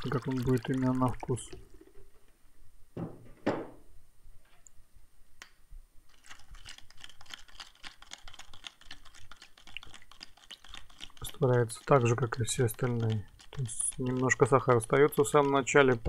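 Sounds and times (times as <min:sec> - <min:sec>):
stirrer clicking against plastic cup: 0:06.1 - 0:16.0.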